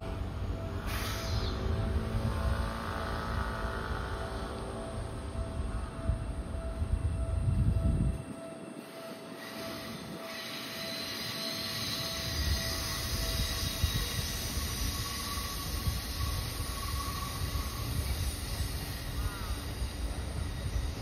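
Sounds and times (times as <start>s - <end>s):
wheels rumbling on rails: 0.0s - 21.0s
train wheels squealing: 0.4s - 4.6s, 8.8s - 21.0s.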